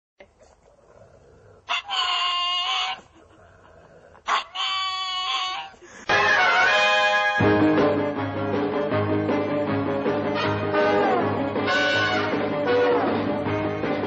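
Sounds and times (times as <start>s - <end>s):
dog screaming: 1.6s - 3.1s, 4.2s - 5.8s
music: 6.1s - 14.0s.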